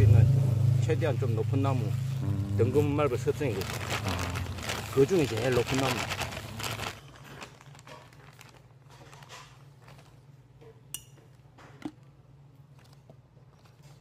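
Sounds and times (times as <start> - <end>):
steady low hum: 0.0 - 7.8
plastic bag rustling: 2.6 - 10.2.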